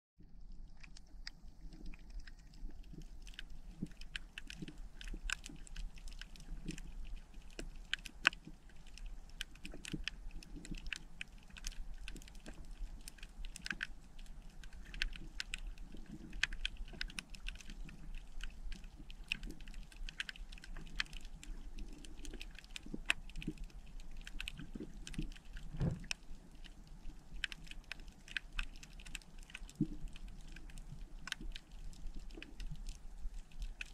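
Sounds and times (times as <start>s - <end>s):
dull low thump: 25.7s - 26.1s.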